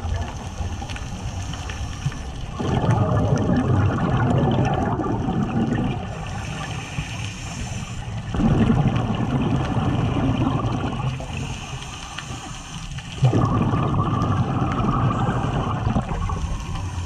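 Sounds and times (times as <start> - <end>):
underwater bubbles gurgling: 0.0 - 17.0.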